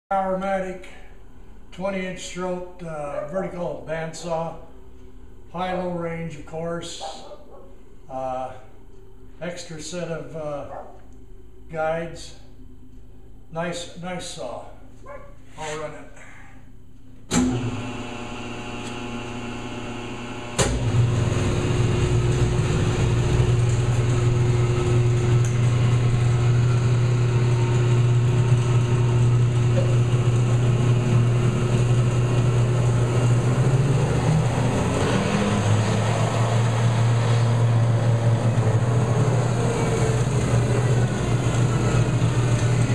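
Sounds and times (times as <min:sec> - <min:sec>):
band saw motor hum: 0:17.4 - 0:42.9.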